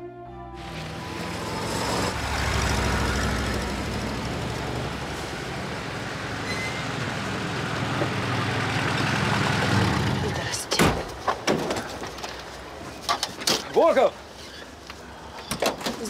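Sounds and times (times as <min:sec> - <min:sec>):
car engines running: 0:00.6 - 0:11.2.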